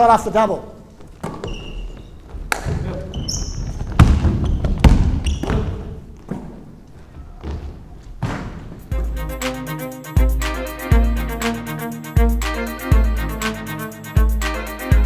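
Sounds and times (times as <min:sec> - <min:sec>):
sneaker squeaks: 0:00.9 - 0:08.9
basketball bouncing on hardwood floor: 0:02.5 - 0:06.6.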